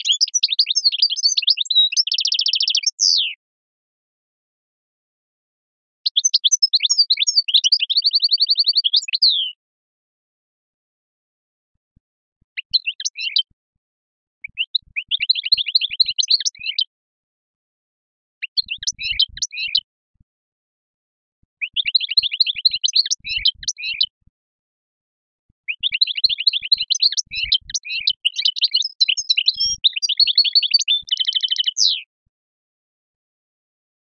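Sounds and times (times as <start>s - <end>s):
finch twittering song: 0.0s - 3.4s, 6.0s - 9.6s, 12.6s - 13.5s, 14.4s - 16.9s, 18.4s - 19.9s, 21.6s - 24.1s, 25.7s - 32.1s.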